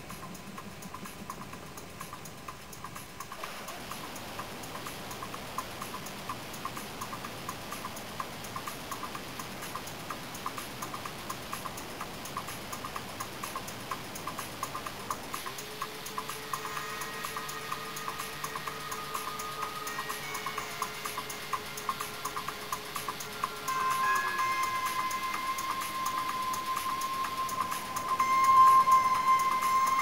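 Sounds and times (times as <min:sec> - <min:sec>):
light regular ticking: 0:00.0 - 0:30.0
steady rushing noise: 0:00.0 - 0:30.0.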